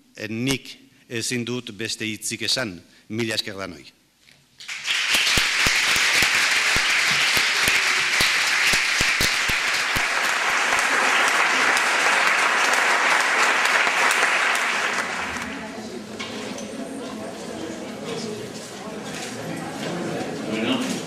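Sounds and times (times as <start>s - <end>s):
audience applause: 4.6s - 15.8s.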